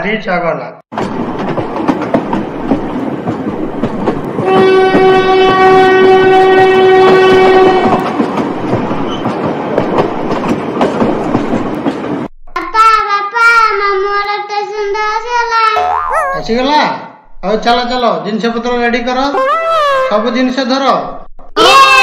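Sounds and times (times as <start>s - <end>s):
train wheels on rails: 1.0s - 12.3s
train horn blast: 4.4s - 8.0s.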